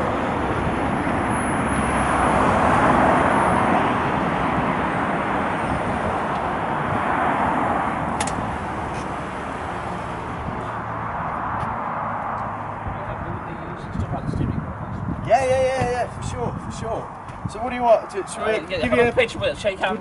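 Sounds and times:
passing vehicles rushing: 0:00.0 - 0:20.0
sharp click: 0:08.2 - 0:08.4.

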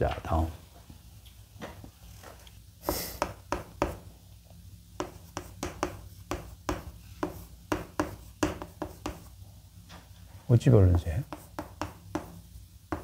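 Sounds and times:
chalk writing on a blackboard: 0:02.8 - 0:04.1, 0:04.9 - 0:09.4, 0:10.9 - 0:13.0.

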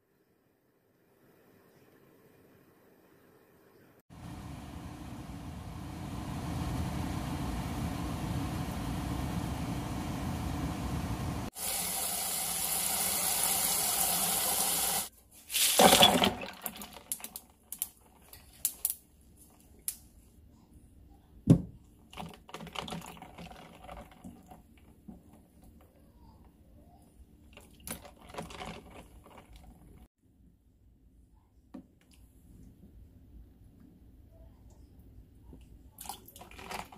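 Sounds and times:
pot boiling and bubbling: 0:04.1 - 0:15.1.

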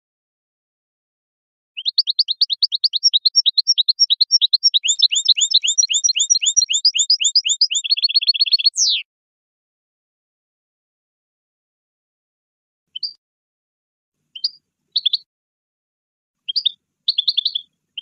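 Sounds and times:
goldfinch song: 0:01.8 - 0:09.1, 0:12.9 - 0:13.2, 0:14.3 - 0:15.3, 0:16.4 - 0:18.0.

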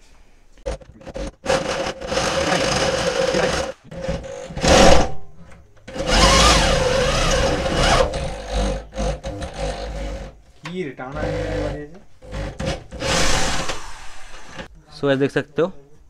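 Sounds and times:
electric drill boring steel: 0:01.4 - 0:05.0, 0:05.9 - 0:10.3, 0:11.2 - 0:14.7.

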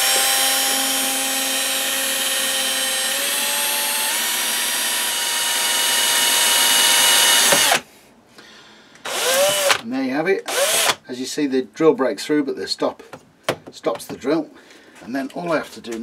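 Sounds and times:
cordless drill motor whining: 0:00.0 - 0:07.8, 0:09.1 - 0:09.8, 0:10.5 - 0:11.0.

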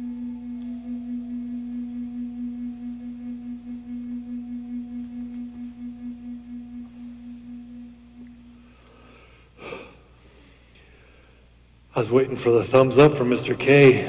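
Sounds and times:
wooden flute long low note: 0:00.0 - 0:09.3.

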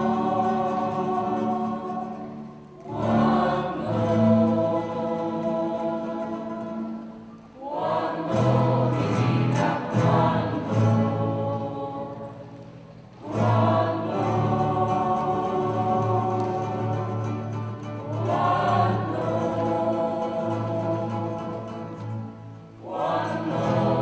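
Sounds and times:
acoustic guitars: 0:00.0 - 0:24.0
mixed choir singing: 0:00.0 - 0:24.0.

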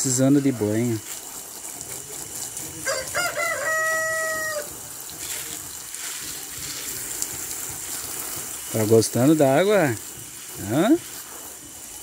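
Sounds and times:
garden hose spraying: 0:00.0 - 0:12.0
rooster crowing: 0:02.8 - 0:04.8.

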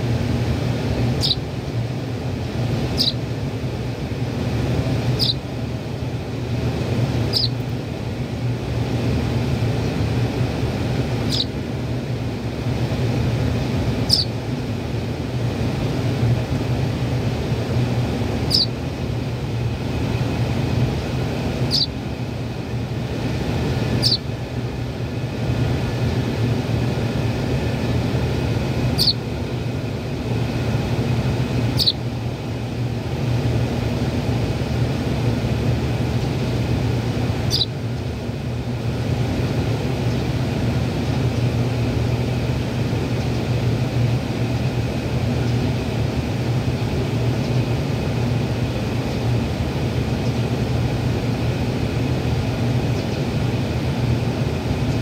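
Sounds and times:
low mechanical hum: 0:00.0 - 0:55.0
sparrow fledgling chirping: 0:01.0 - 0:01.5, 0:02.9 - 0:03.3, 0:05.0 - 0:05.5, 0:07.2 - 0:07.7, 0:11.1 - 0:11.6, 0:13.9 - 0:14.4, 0:17.9 - 0:18.8, 0:20.1 - 0:22.1, 0:23.7 - 0:24.4, 0:28.6 - 0:29.3, 0:30.6 - 0:32.2, 0:37.3 - 0:38.0.

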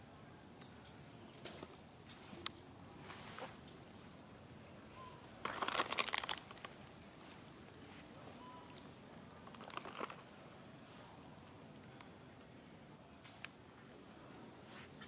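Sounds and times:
insects droning: 0:00.0 - 0:15.0
rustling of dry ground litter: 0:01.4 - 0:03.9, 0:05.4 - 0:08.6, 0:09.4 - 0:10.3.

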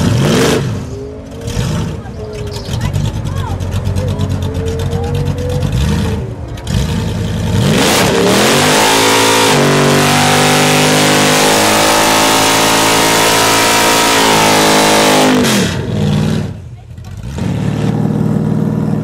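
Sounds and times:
engine revving hard: 0:00.0 - 0:02.1, 0:05.1 - 0:16.6.

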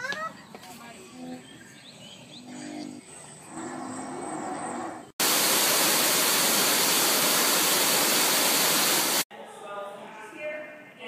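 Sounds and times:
water rushing down rocks: 0:05.2 - 0:09.2.

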